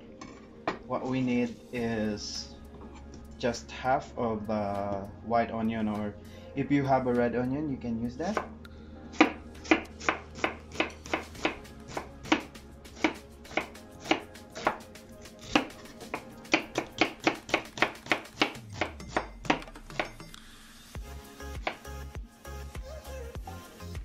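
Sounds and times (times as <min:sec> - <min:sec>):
knife chopping on wooden board: 0:09.2 - 0:14.8, 0:15.4 - 0:20.2.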